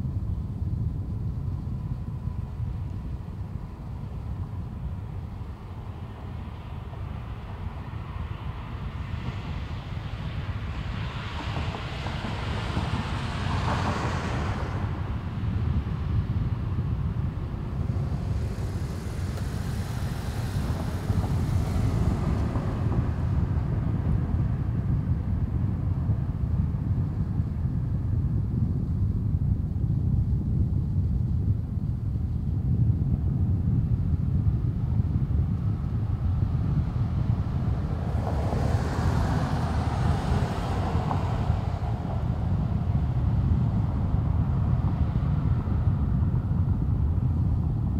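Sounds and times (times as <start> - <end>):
passing car tyres hissing: 8.4 - 25.4, 36.2 - 45.7.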